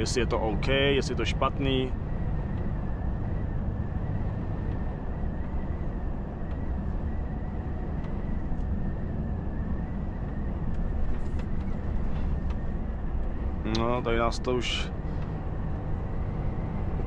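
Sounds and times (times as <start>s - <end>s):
faint high whine: 0.0s - 17.0s
truck cab driving rumble: 0.0s - 17.0s.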